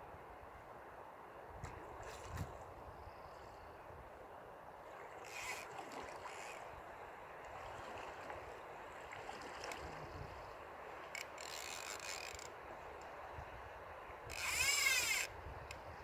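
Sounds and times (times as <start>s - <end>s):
river water running over stones: 4.8s - 15.3s.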